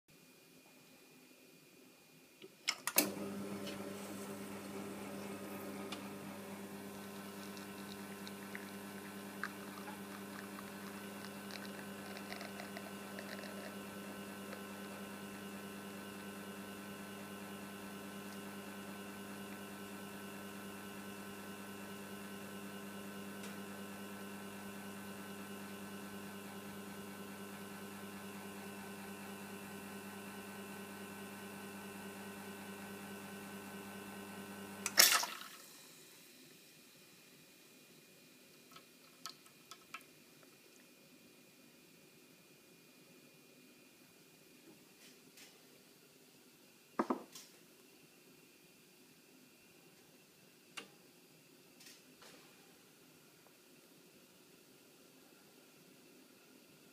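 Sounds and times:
espresso machine pump humming: 0:03.0 - 0:36.1.

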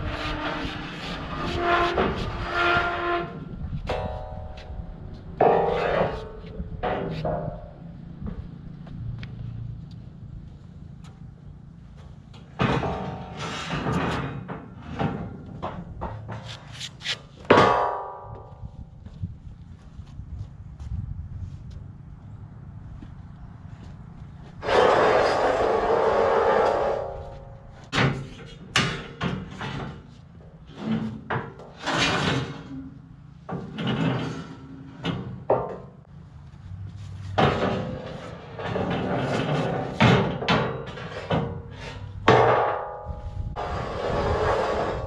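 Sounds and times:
metal scraping slide: 0:00.0 - 0:04.4, 0:05.4 - 0:07.4, 0:12.7 - 0:15.3, 0:24.6 - 0:27.6, 0:30.7 - 0:33.0, 0:33.6 - 0:35.4, 0:37.1 - 0:45.0
metal clanks and thuds: 0:03.6 - 0:08.6, 0:11.9 - 0:16.7, 0:17.4 - 0:19.2, 0:37.2 - 0:43.8.

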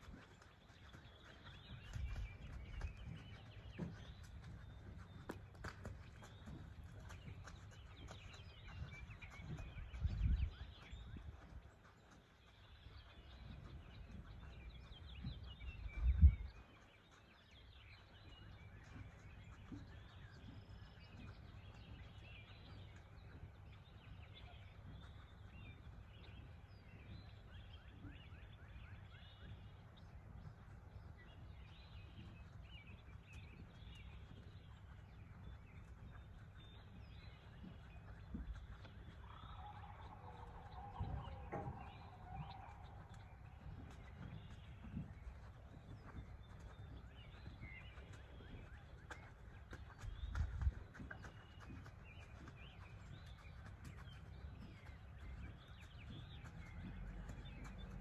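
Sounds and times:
birds chirping and singing: 0:00.1 - 0:58.0
low steady rumble: 0:17.7 - 0:58.0.

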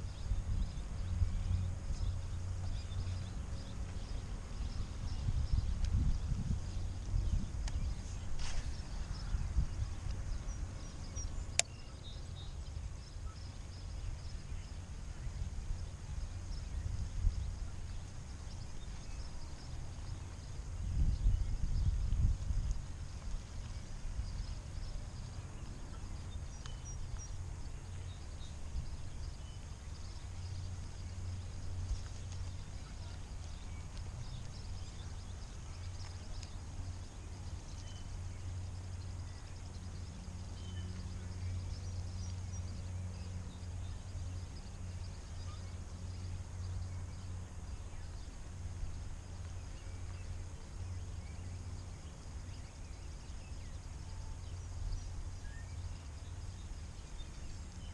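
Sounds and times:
birds chirping: 0:00.0 - 0:57.9
low background rumble: 0:00.0 - 0:57.9.

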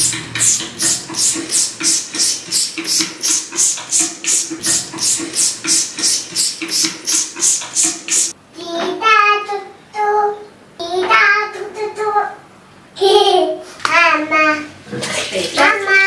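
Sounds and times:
spray bottle squirting: 0:00.4 - 0:08.4.

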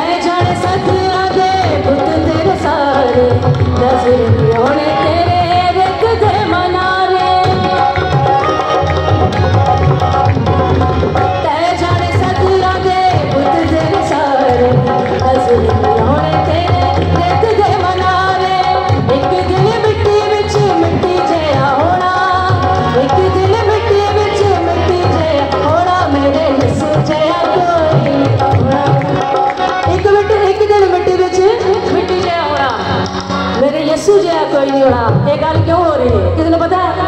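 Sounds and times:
harmonium: 0:00.0 - 0:37.0
tabla and dholak drumming: 0:00.0 - 0:37.0.

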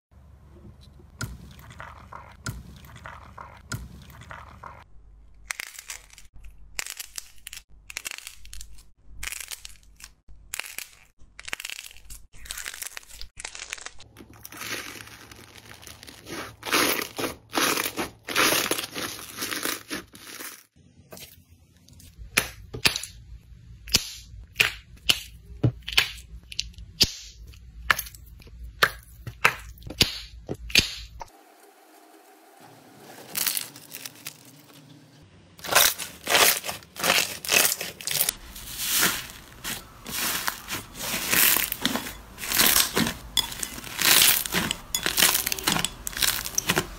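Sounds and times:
slime squishing: 0:05.5 - 0:21.4, 0:35.6 - 0:46.9
plastic bags popping: 0:35.6 - 0:46.9.

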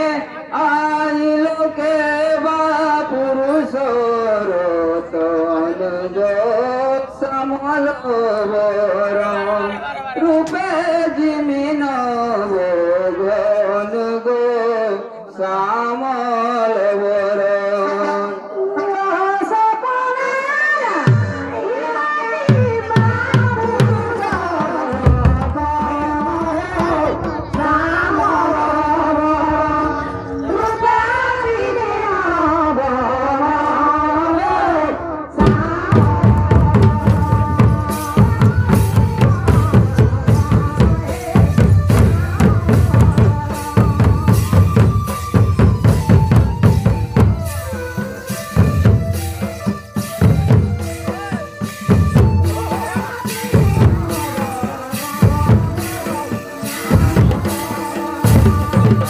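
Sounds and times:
man singing folk song: 0:35.4 - 0:45.6, 0:50.8 - 0:59.0
barrel drums beating: 0:35.4 - 0:59.0
held melody line: 0:35.4 - 0:59.0.

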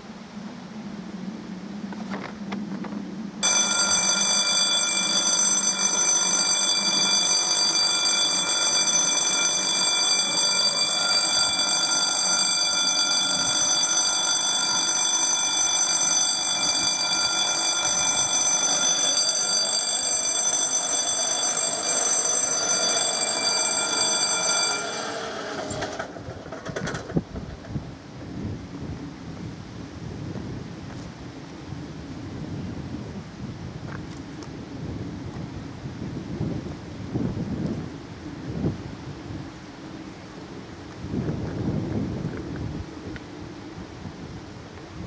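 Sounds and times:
level crossing bell ringing: 0:03.4 - 0:26.1.

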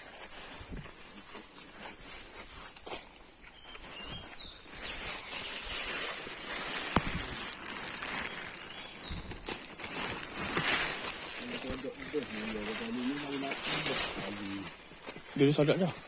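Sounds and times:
footsteps in dry leaves: 0:00.0 - 0:16.0
high insect drone: 0:00.0 - 0:16.0
bird chirping: 0:03.4 - 0:14.7.

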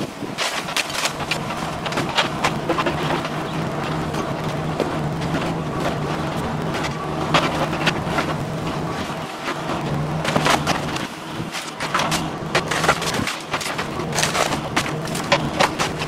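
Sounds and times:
excavator diesel engine running: 0:00.0 - 0:16.0
falling debris: 0:00.0 - 0:16.0
wood cracking and splintering: 0:00.0 - 0:16.0.

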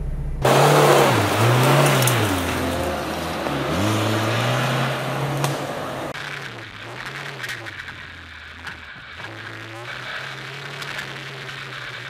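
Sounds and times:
suv engine revving: 0:00.4 - 0:07.6.

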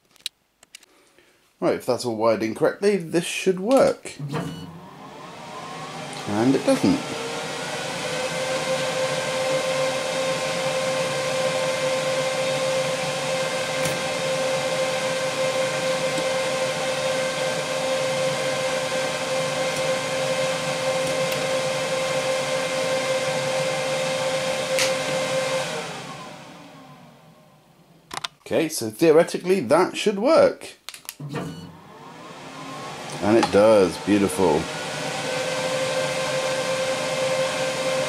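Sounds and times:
laser engraver whirring hum: 0:31.2 - 0:36.5.

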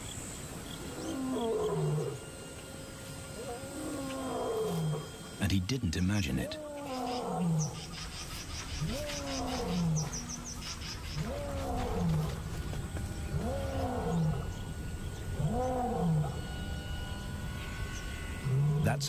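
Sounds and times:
lion roaring: 0:00.8 - 0:02.2, 0:03.4 - 0:05.3, 0:06.4 - 0:08.0, 0:08.8 - 0:12.7, 0:13.3 - 0:14.7, 0:15.4 - 0:16.6.

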